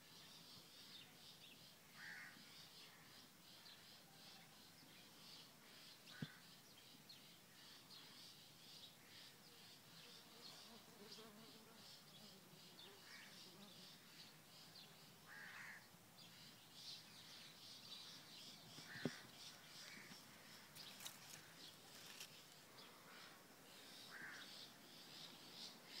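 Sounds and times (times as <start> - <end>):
low hum of bees: 0.1 - 26.0
distant caw-like bird calls: 1.8 - 3.8, 5.6 - 6.6, 13.0 - 13.4, 15.2 - 16.5, 18.1 - 21.7, 22.9 - 26.0.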